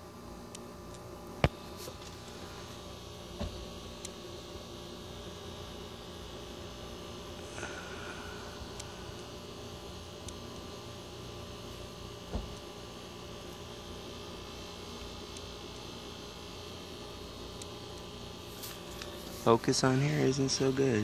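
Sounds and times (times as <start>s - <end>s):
steady low hum: 0.0s - 21.0s
soft thump: 12.3s - 12.6s.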